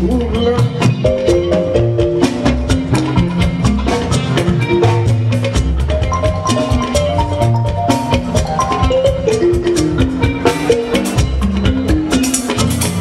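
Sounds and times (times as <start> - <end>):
bass guitar line: 0.0 - 13.0
drums and percussion: 0.0 - 13.0
short melodic notes: 5.9 - 11.0.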